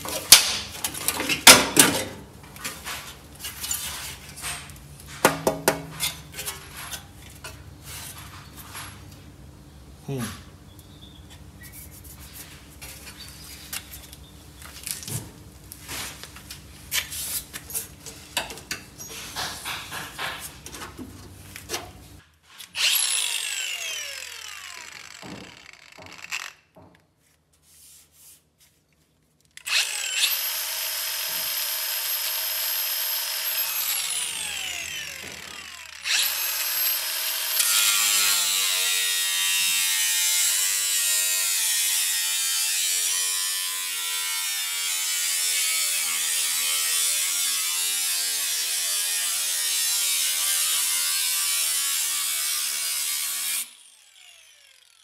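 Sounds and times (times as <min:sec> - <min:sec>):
grinder grinding steel: 0:22.8 - 0:26.5, 0:29.7 - 0:55.0
angle grinder whining: 0:22.8 - 0:26.6, 0:29.6 - 0:55.0.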